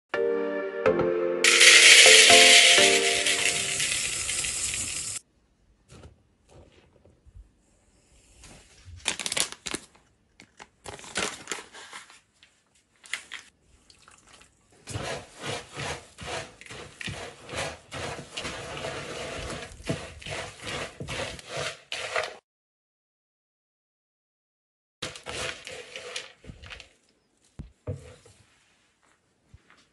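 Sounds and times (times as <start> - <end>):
oats poured into a bowl: 1.5 - 5.0
spatula scraping a bowl: 14.8 - 22.4, 25.0 - 26.8.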